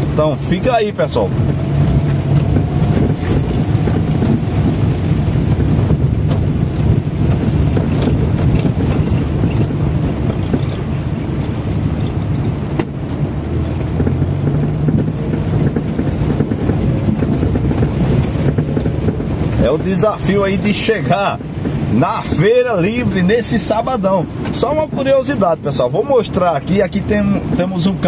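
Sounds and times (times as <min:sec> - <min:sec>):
car engine hum: 0:00.0 - 0:28.0
rain on car: 0:00.0 - 0:28.0
road noise: 0:00.0 - 0:28.0.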